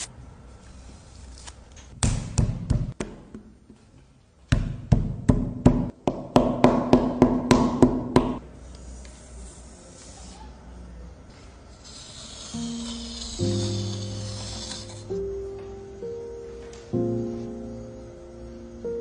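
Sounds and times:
mallet thudding on clay: 4.5 - 8.4.

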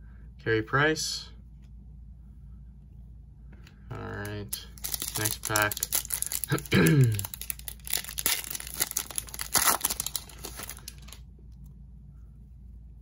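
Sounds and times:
foil wrapper tearing and crinkling: 4.7 - 11.2.

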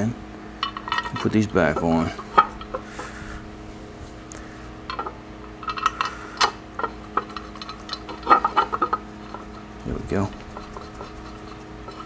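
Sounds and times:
steady low hum: 0.0 - 12.0
small metal clicks: 4.9 - 12.0.

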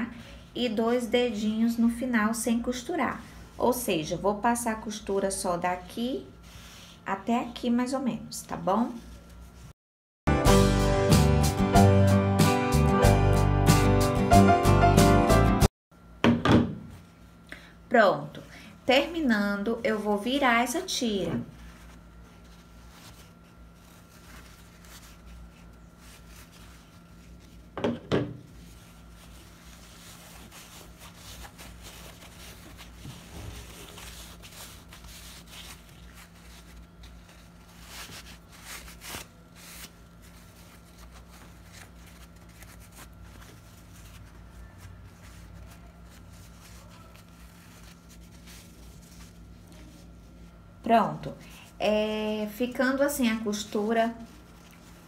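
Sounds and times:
faint steady hum: 16.8 - 55.0
fabric rubbing and rustling: 18.9 - 50.8, 51.6 - 55.0.

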